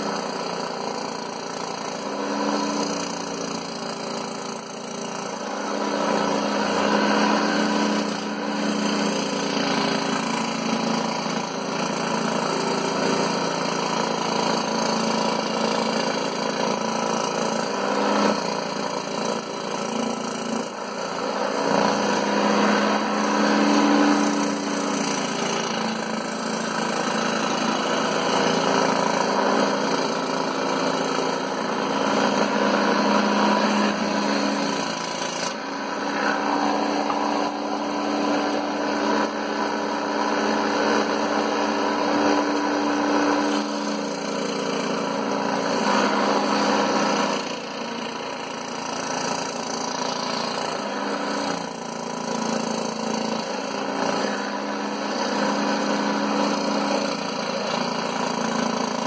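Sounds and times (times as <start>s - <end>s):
saw blade rasping through board: 0.0s - 59.0s
scroll saw motor hum: 19.8s - 51.7s.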